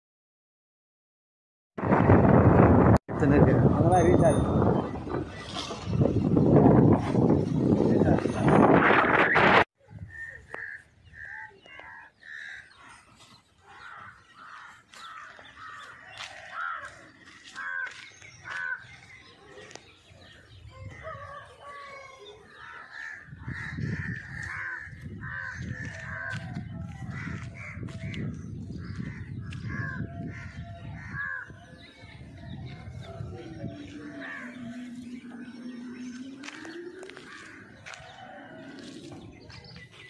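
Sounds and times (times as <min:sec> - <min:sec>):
birds calling: 0:09.1 - 0:40.0
crows cawing: 0:10.5 - 0:12.9, 0:13.7 - 0:19.2, 0:22.5 - 0:31.5, 0:34.0 - 0:35.2, 0:36.2 - 0:38.6.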